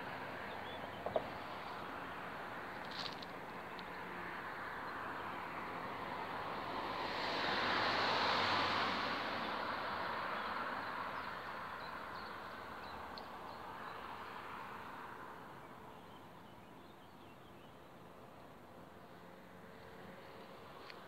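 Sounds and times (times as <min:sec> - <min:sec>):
vehicle passing by: 0:03.9 - 0:11.4.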